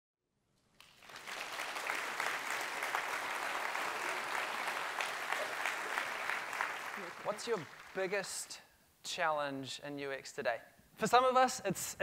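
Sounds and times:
audience applauding: 0.8s - 8.5s.

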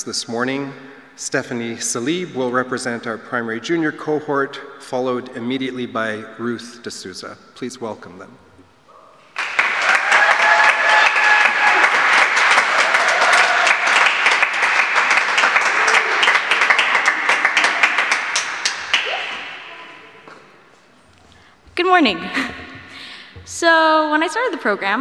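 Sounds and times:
audience applauding: 9.3s - 19.8s.

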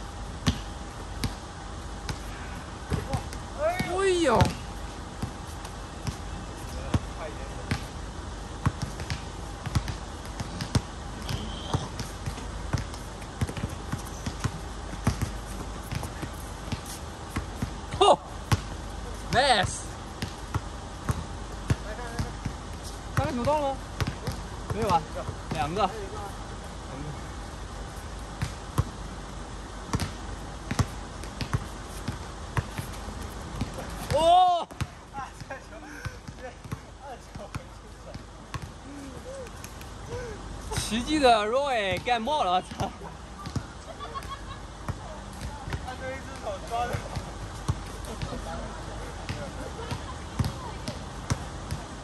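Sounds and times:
basketball bouncing on court: 0.4s - 1.5s, 2.8s - 5.4s, 6.9s - 7.9s, 8.5s - 25.8s, 29.9s - 38.8s, 41.9s - 48.5s, 49.2s - 51.9s
shoe squeak: 11.2s - 12.0s.

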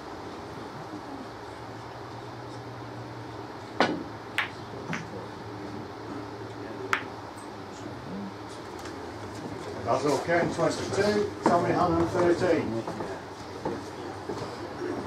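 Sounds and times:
cue tip striking ball: 3.8s - 5.1s
snooker balls clicking: 4.3s - 5.1s.

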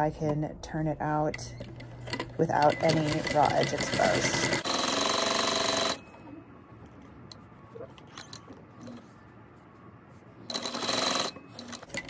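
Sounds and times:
sewing machine stitching: 2.0s - 6.0s.

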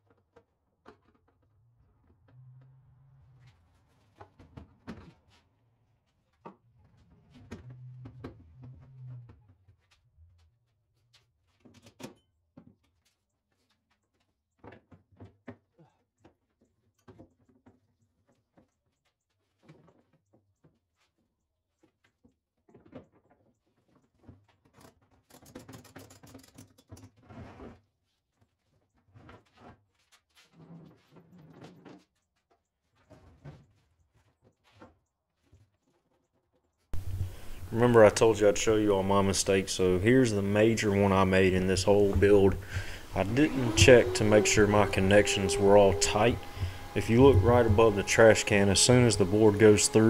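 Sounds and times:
rustling and scraping: 27.2s - 48.0s.

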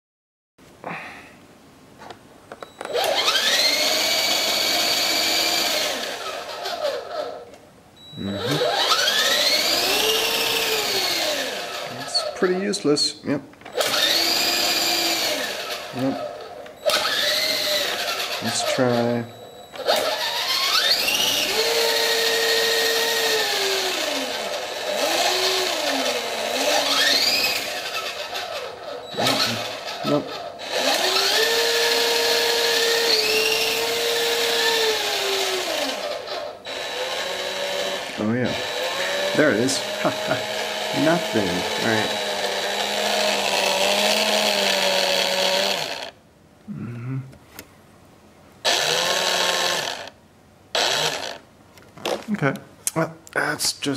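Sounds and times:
toy helicopter rotor motors whining: 2.9s - 7.4s, 8.2s - 12.6s, 13.7s - 19.2s, 19.8s - 46.2s, 48.6s - 50.2s, 50.8s - 51.4s.

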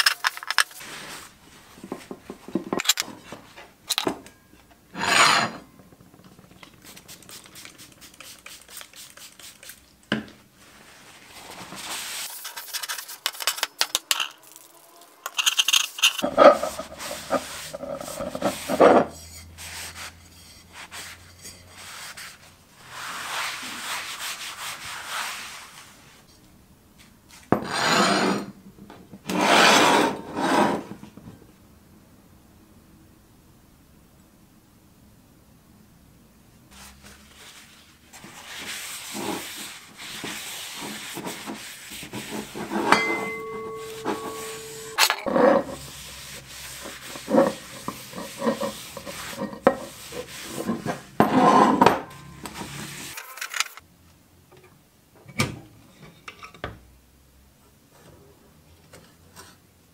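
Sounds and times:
paper towel rubbing on rough metal: 16.2s - 26.0s, 36.8s - 42.9s, 43.8s - 51.8s.

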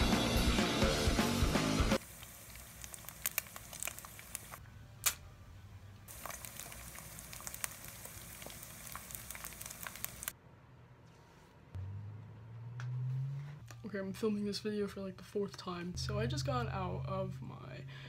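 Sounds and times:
rock music: 0.0s - 2.0s
eggs frying in a pan: 2.0s - 4.6s, 6.1s - 10.4s.

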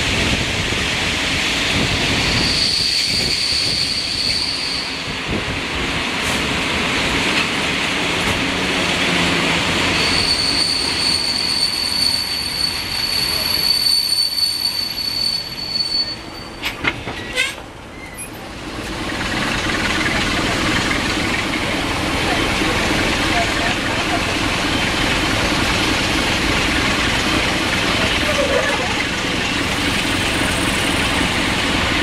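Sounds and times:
train wheels rushing on rails: 0.0s - 32.0s
high-pitched wheel squeal: 2.3s - 5.0s, 9.9s - 18.4s.

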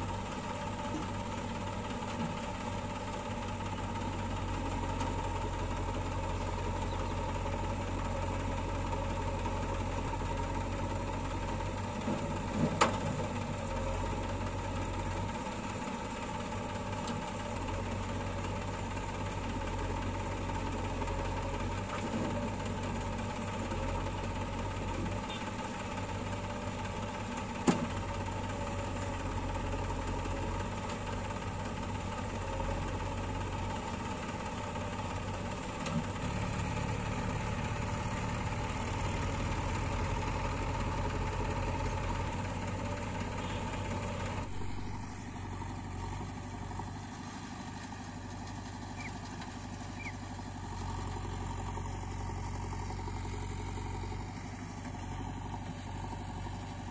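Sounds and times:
diesel engines running: 0.0s - 56.9s.

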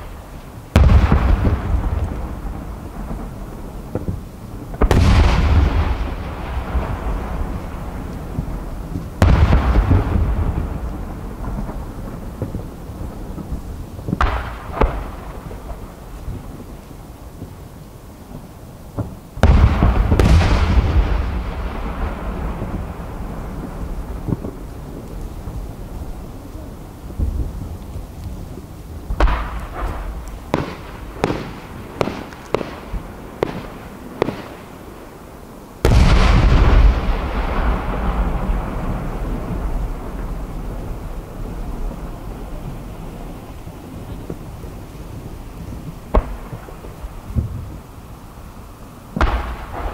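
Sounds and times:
fireworks bursting: 0.0s - 49.9s
firework shells bursting: 29.1s - 34.8s, 45.8s - 47.5s.

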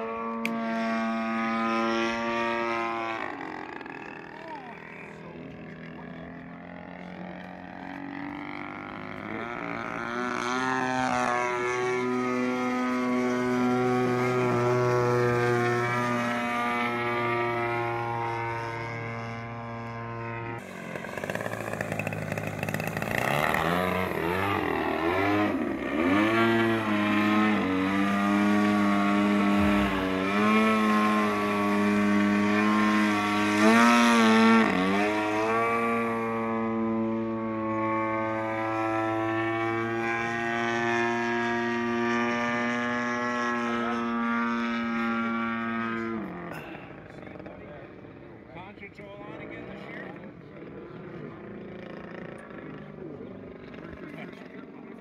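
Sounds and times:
model plane engine droning: 0.0s - 55.0s.

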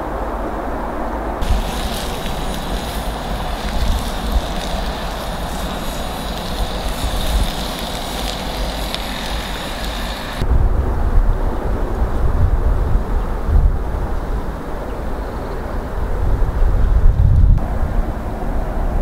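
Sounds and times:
steady outdoor hiss: 0.0s - 16.4s
wind rumble on microphone: 0.0s - 19.0s
campfire embers crackling: 1.4s - 10.4s.

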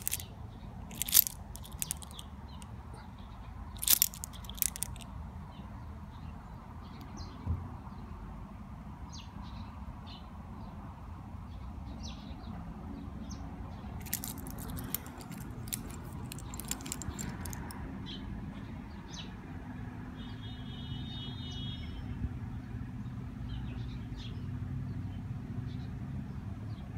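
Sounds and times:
metal watch links clinking: 0.0s - 0.3s, 0.9s - 2.2s, 3.8s - 5.0s, 14.0s - 17.8s.

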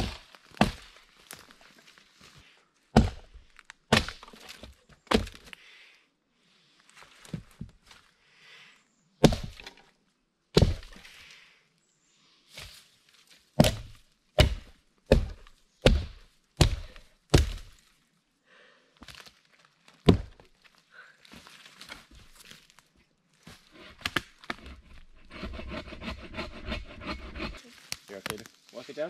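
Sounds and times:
hatchet chopping log: 0.0s - 0.9s, 2.9s - 5.5s, 9.2s - 9.8s, 10.6s - 11.0s, 13.6s - 17.7s, 20.0s - 20.4s, 23.8s - 27.6s.

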